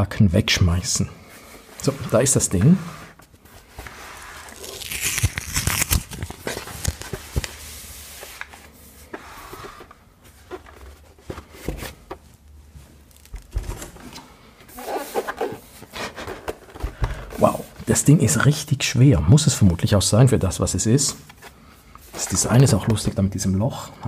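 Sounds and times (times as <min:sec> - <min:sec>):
wrapping rustling: 0:03.2 - 0:09.0, 0:09.6 - 0:16.8.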